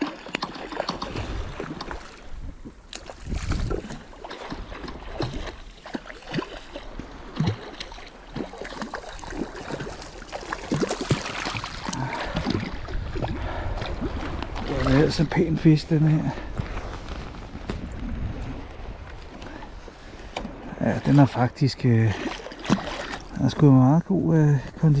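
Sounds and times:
shallow water splashing: 0:00.0 - 0:23.8
wind rumbling on microphone: 0:01.0 - 0:05.8, 0:10.7 - 0:23.6.

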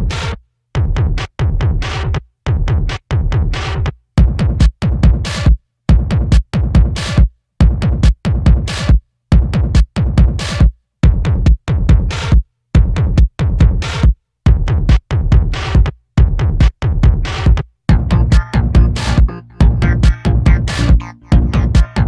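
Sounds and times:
electronic industrial music: 0:17.4 - 0:22.0.

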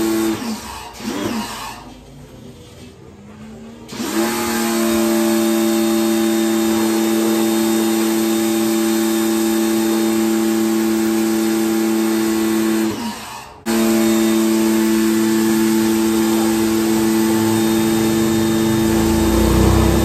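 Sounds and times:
pressure washer motor humming: 0:00.0 - 0:01.7, 0:03.9 - 0:20.0.

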